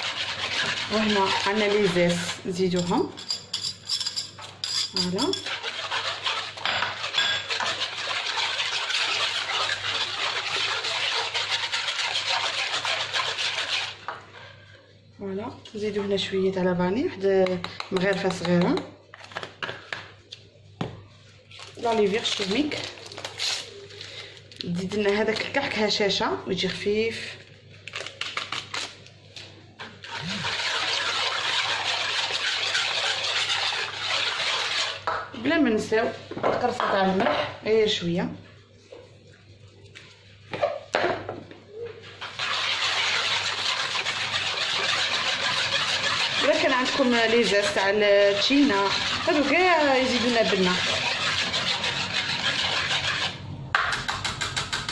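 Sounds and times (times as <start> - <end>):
whisk swishing batter: 0.0 - 3.0, 5.0 - 14.6, 21.8 - 23.7, 29.8 - 35.2, 42.0 - 54.9
liquid sloshing in a bowl: 4.4 - 14.5, 29.8 - 35.0, 42.2 - 53.4.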